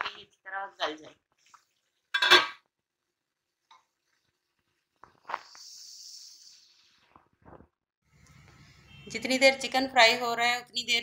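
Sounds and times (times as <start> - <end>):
metal lid clattering: 2.2 - 2.6.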